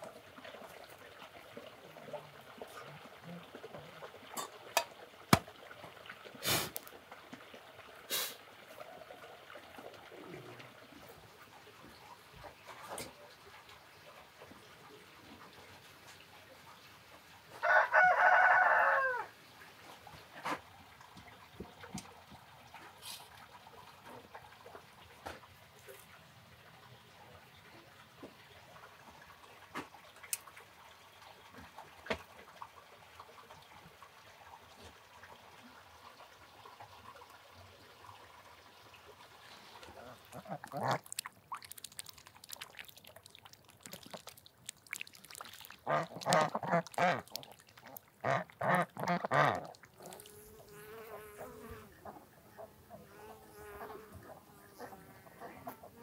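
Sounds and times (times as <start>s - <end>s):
ducks quacking: 39.8s - 41.1s, 45.8s - 50.2s
honeybees buzzing: 50.0s - 51.9s.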